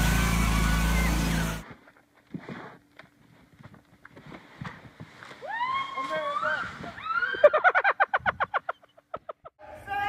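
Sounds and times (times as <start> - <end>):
lawn tractor engine running: 0.0 - 1.6.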